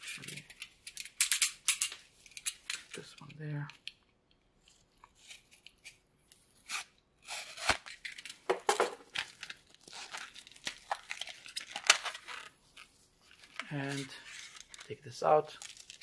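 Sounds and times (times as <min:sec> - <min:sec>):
packaging tearing and crackling: 0:06.7 - 0:08.4, 0:09.0 - 0:14.9, 0:15.5 - 0:16.0.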